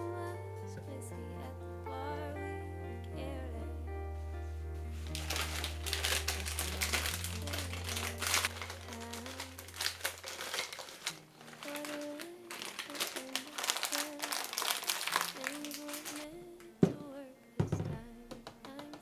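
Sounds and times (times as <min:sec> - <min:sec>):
background music: 0:00.0 - 0:19.0
plastic bag crinkling: 0:05.0 - 0:16.4
frozen berries clattering into cup: 0:05.1 - 0:16.3.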